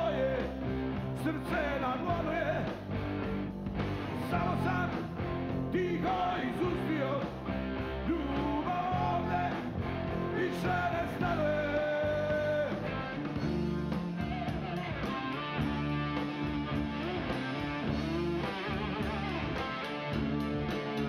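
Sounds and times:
drums: 0:00.0 - 0:21.0
rhythm guitar: 0:00.0 - 0:21.0
lead electric guitar bending notes: 0:11.6 - 0:21.0.

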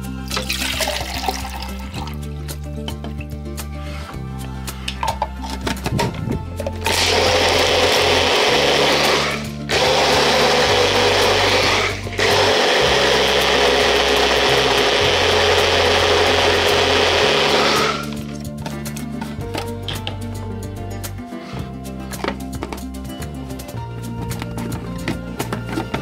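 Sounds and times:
background music: 0:00.0 - 0:26.0
blender motor running: 0:06.8 - 0:18.3.

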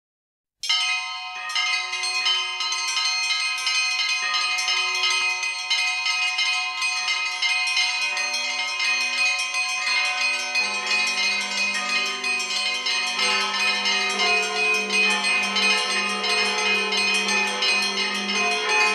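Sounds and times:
bells ringing: 0:00.6 - 0:18.9
deeper bell ringing: 0:08.0 - 0:18.9.

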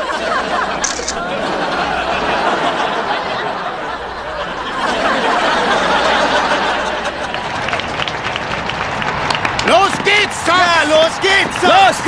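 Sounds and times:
audience laughing: 0:00.0 - 0:09.0.

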